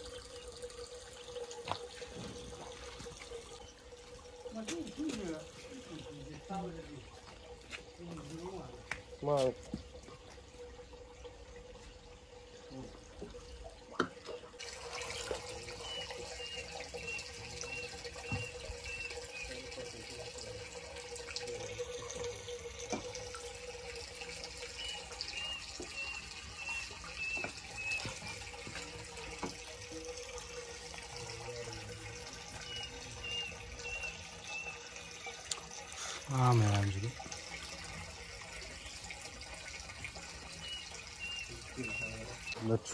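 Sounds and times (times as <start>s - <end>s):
water splashing into fish tank: 0.0s - 42.8s
bird calling high notes: 32.6s - 35.3s, 40.6s - 42.6s.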